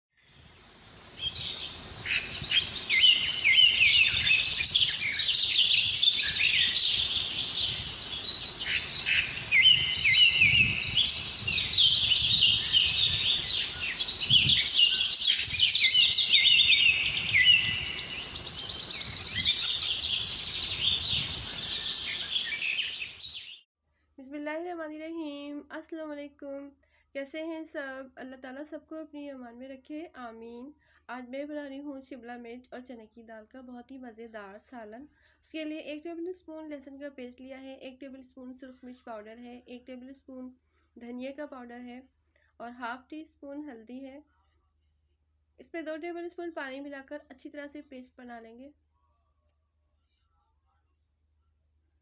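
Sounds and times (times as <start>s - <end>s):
small birds chirping: 0.5s - 23.6s.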